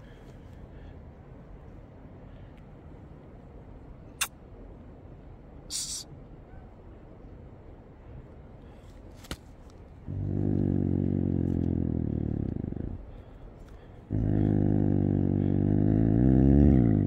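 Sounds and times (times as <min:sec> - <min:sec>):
snow leopard growling: 0:10.0 - 0:17.0.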